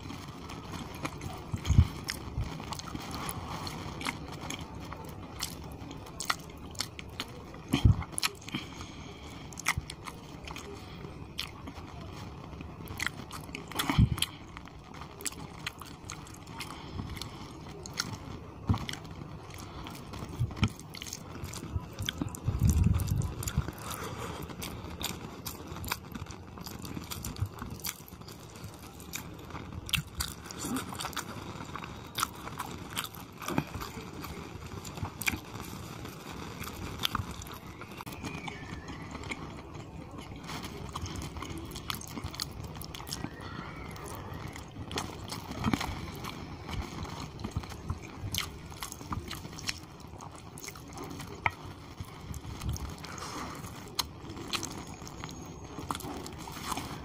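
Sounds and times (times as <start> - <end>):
chewing and mouth smacks: 12.9 - 14.4, 32.1 - 34.3, 34.9 - 35.6, 36.6 - 39.4, 40.4 - 57.0.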